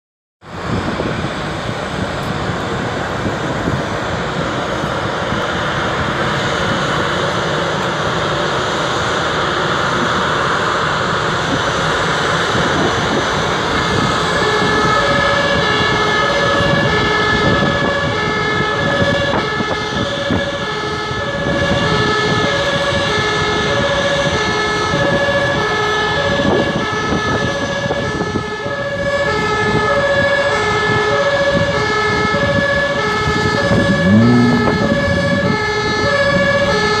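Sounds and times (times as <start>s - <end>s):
two-tone siren: 12.4s - 37.0s
high whine and rushing noise: 33.6s - 37.0s.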